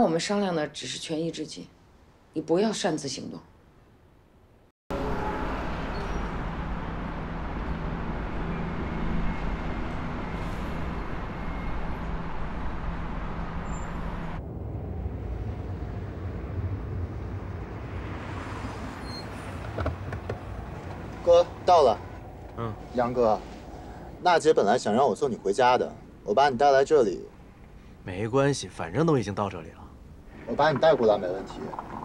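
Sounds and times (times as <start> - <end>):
vehicle rumble inside cabin: 4.9 - 14.6, 18.7 - 24.2
bus and vehicles driving past: 4.9 - 26.2.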